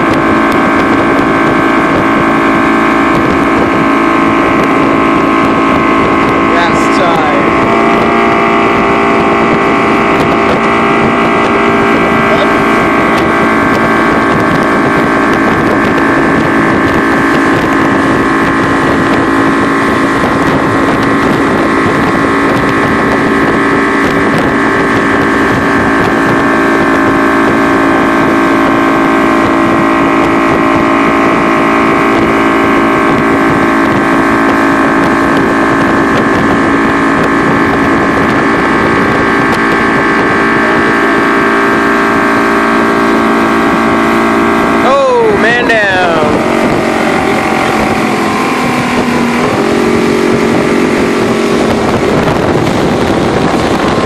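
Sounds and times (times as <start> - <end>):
outboard motor running: 0.0 - 54.0.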